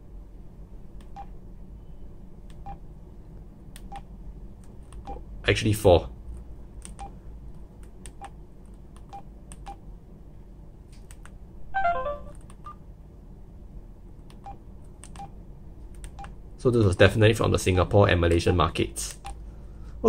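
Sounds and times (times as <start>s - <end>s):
falling confirmation chime: 11.8s - 12.3s
phone keypad beeps: 11.8s - 12.8s.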